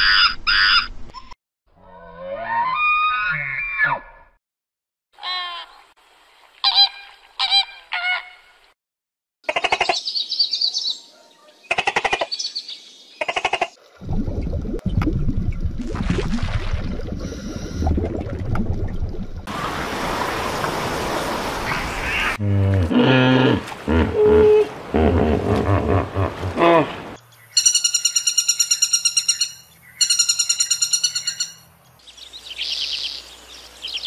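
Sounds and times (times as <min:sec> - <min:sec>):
hippos grunting: 0:22.4 - 0:27.2.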